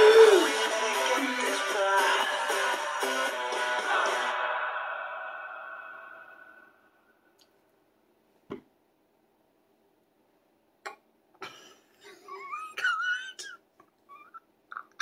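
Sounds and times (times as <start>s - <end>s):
song playing: 0.0s - 5.1s.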